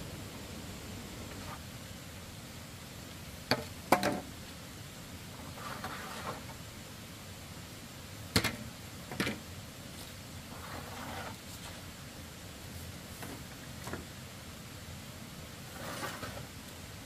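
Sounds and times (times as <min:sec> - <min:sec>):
soft scraping: 0:05.4 - 0:06.5, 0:10.5 - 0:11.8, 0:15.7 - 0:16.5
bamboo pole scraping dry dirt: 0:05.4 - 0:06.6, 0:10.5 - 0:11.8, 0:15.7 - 0:16.5.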